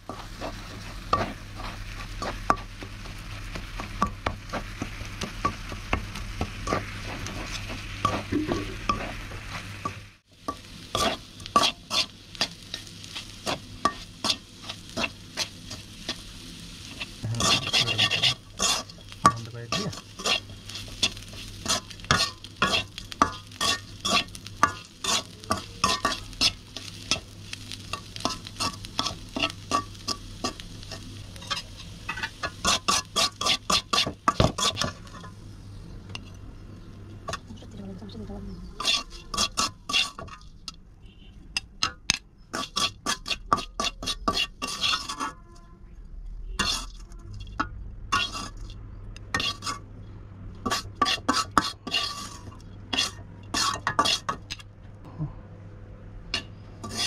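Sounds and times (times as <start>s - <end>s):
steady low hum: 0.0s - 42.8s, 52.0s - 57.0s
light frying sizzle: 0.0s - 45.4s, 46.0s - 54.7s, 56.2s - 57.0s
metal spatula scraping a pan: 6.6s - 35.4s, 38.7s - 45.7s, 46.4s - 48.7s, 49.3s - 49.8s, 50.6s - 54.6s, 56.4s - 57.0s.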